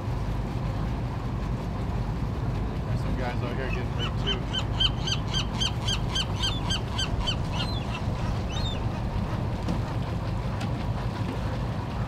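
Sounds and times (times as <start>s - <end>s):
gull calling: 3.7s - 9.0s
low rumble: 6.1s - 11.1s.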